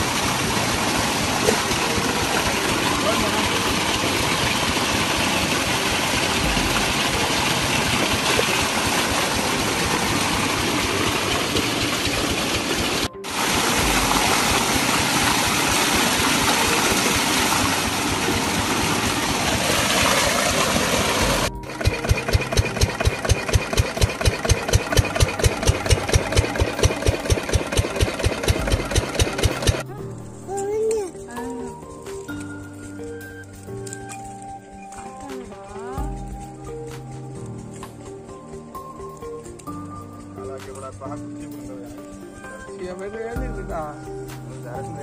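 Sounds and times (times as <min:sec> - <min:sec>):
pump engine thudding: 0:00.0 - 0:29.9.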